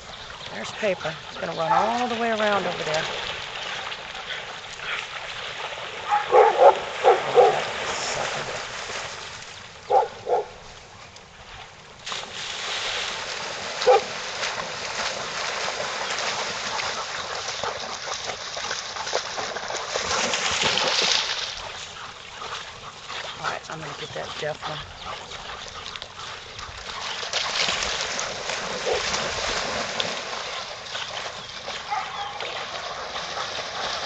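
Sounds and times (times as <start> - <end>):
water sloshing and splashing: 0.0 - 34.0
dog barking sharply: 6.1 - 7.6.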